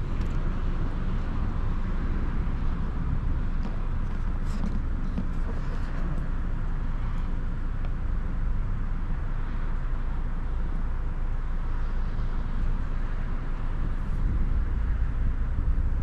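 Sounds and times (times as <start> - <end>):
low outdoor rumble: 0.0 - 16.0.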